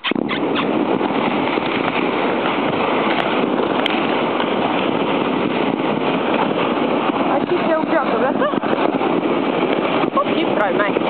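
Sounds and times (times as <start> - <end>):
plastic sled scraping on snow: 0.2 - 11.0.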